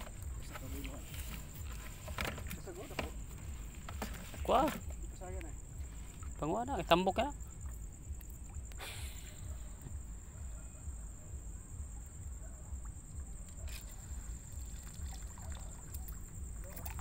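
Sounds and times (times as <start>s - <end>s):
insects trilling: 0.0s - 17.0s
footsteps sloshing through water: 13.5s - 17.0s.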